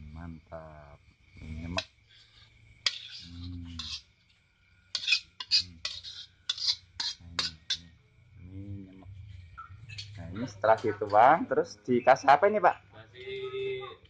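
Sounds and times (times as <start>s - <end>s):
metal spatula scraping wok: 2.1s - 4.1s, 4.9s - 7.8s.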